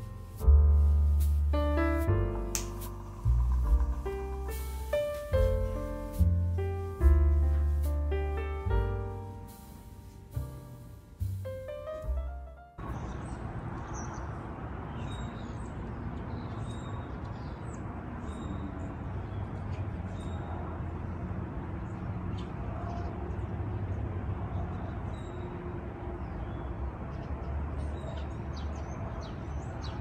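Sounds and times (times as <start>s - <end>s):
low background rumble: 0.0s - 13.1s
small birds chirping: 0.8s - 7.0s, 8.8s - 20.5s.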